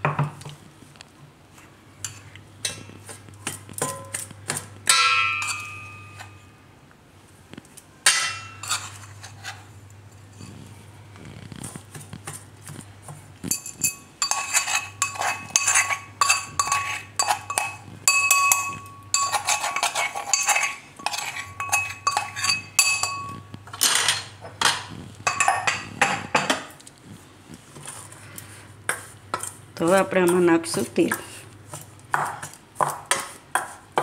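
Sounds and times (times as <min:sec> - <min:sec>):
metal spoon clinking on steel bowl: 0:03.8 - 0:04.3, 0:04.9 - 0:06.5, 0:13.5 - 0:26.6.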